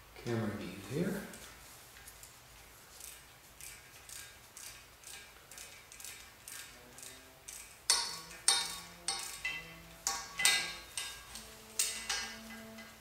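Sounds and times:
wrench clicking with ringing tone: 5.1s - 13.0s.

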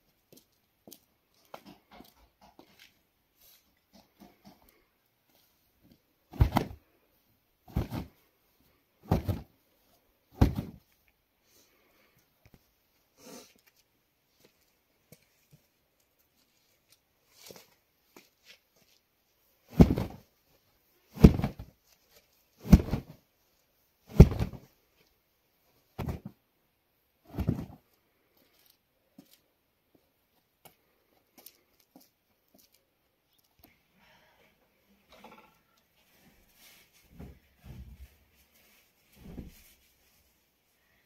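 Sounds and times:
rug flapping: 6.3s - 6.8s, 7.7s - 8.2s, 9.0s - 9.5s, 10.3s - 10.8s, 19.7s - 20.3s, 21.1s - 21.8s, 22.6s - 23.2s, 24.1s - 24.7s, 25.9s - 26.4s, 27.3s - 27.8s.

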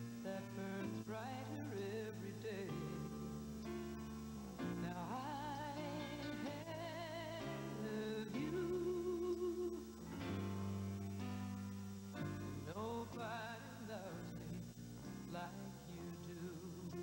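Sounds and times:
woman singing with vibrato: 0.0s - 3.3s, 4.7s - 10.0s, 12.6s - 14.7s, 15.3s - 17.0s
guitar and bass accompaniment: 0.0s - 17.0s.

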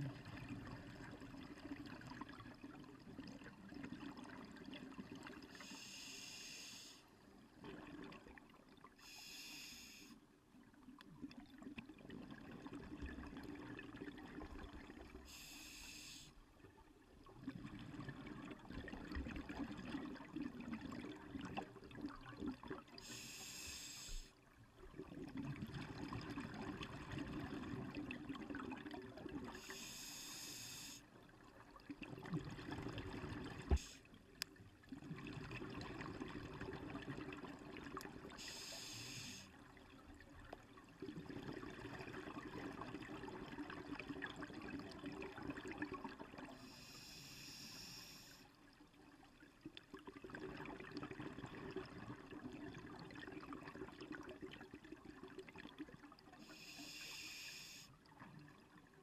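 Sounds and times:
regulator hissing inhalation: 5.6s - 7.0s, 9.0s - 10.2s, 15.3s - 16.3s, 23.1s - 24.3s, 29.6s - 31.0s, 38.4s - 39.5s, 46.8s - 48.4s, 56.5s - 57.9s.

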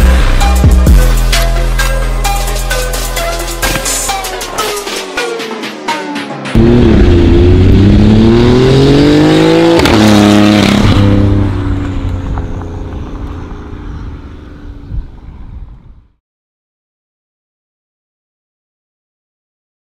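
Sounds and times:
car engine accelerating hard: 6.5s - 15.4s.

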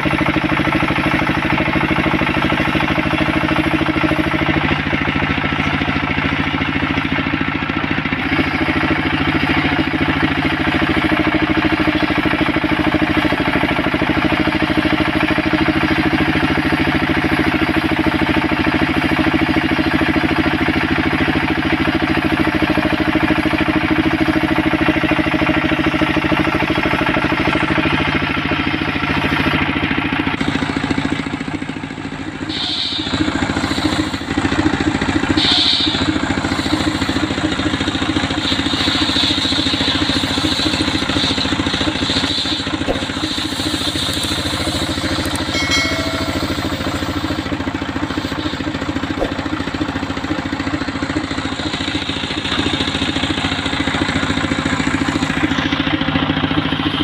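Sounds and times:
sawmill engine running: 0.0s - 57.0s
saw blade cutting wood: 32.5s - 50.0s.

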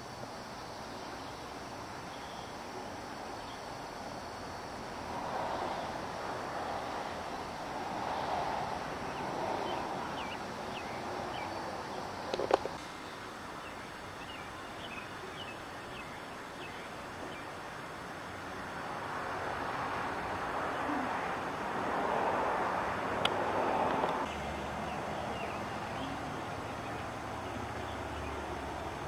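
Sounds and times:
faint bird chirps: 2.1s - 3.7s, 13.0s - 17.6s.

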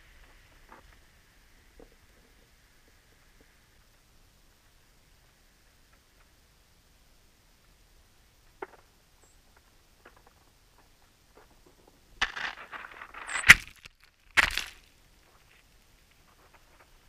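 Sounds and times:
birds scratching in crusted snow: 11.4s - 13.8s, 14.7s - 17.0s.

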